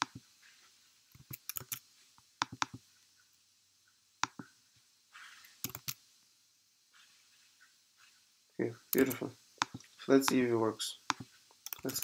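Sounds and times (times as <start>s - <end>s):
computer keyboard typing: 1.1s - 1.8s, 5.6s - 6.0s, 9.0s - 10.4s, 11.1s - 12.0s.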